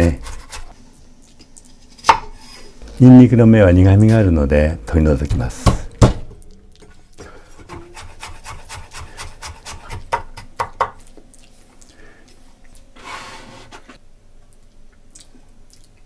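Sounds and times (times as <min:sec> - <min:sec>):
knife scraping board: 0:07.7 - 0:10.0.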